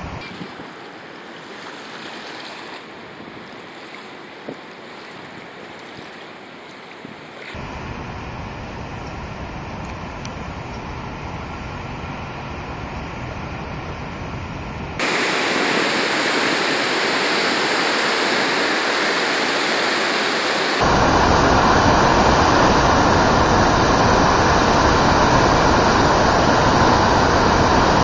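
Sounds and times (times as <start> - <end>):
rushing white water: 0.0 - 28.0.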